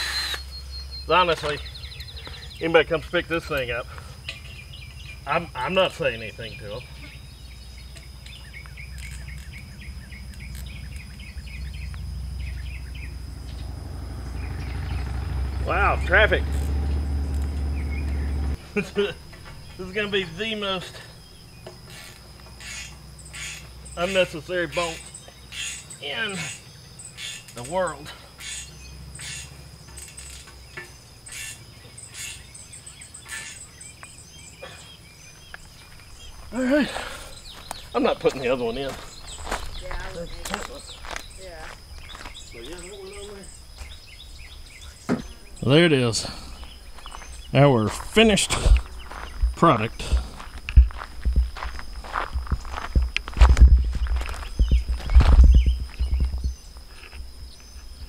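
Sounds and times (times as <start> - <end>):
birds chirping: 0.0 - 58.0
insects droning: 0.0 - 58.0
approaching vehicle rumble: 0.5 - 21.9.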